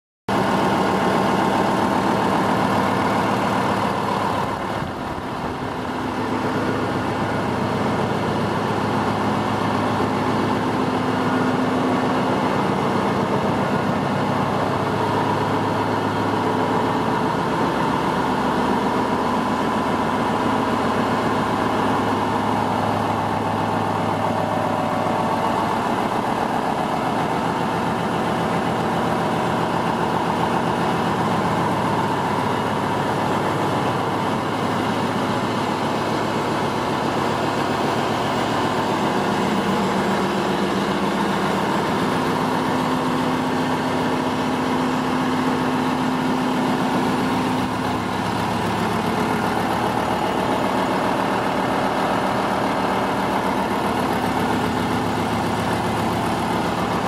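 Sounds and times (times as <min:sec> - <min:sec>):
diesel engine drone: 0:00.3 - 0:57.0.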